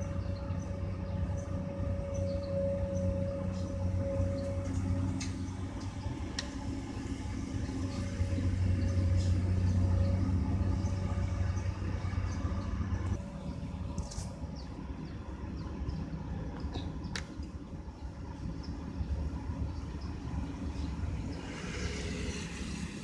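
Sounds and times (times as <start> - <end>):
excavator diesel engine running: 0.0 - 13.9.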